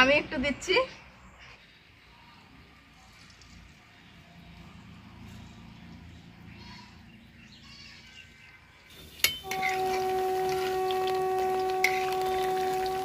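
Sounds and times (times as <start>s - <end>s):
batter sizzling in hot oil: 8.9s - 13.0s
steady horn-like tone: 9.4s - 13.0s.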